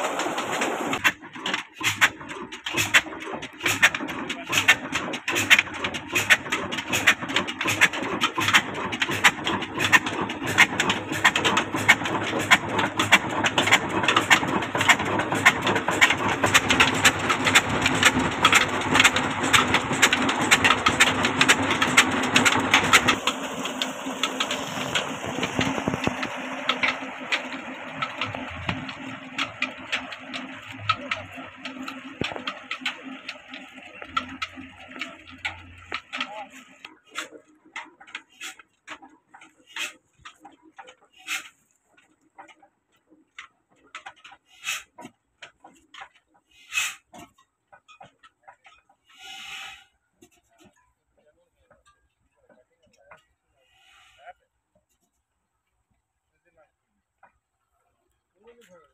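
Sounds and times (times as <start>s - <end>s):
water gushing from pipe: 0.0s - 36.8s
diesel engine knocking beat: 0.0s - 38.3s.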